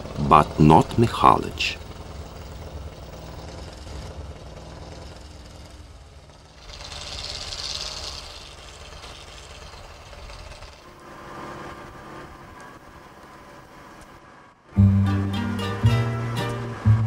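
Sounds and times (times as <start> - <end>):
truck engine running: 0.0 - 17.0
rushing hiss: 6.6 - 10.8.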